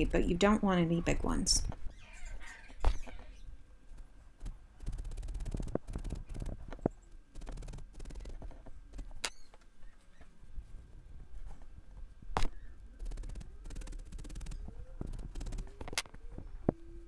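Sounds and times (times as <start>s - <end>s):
rustling fibres: 2.7s - 16.6s
rapid ticks: 3.9s - 9.4s, 13.0s - 16.1s
felting needle poking wool: 4.4s - 6.6s, 7.4s - 9.4s, 13.0s - 15.7s.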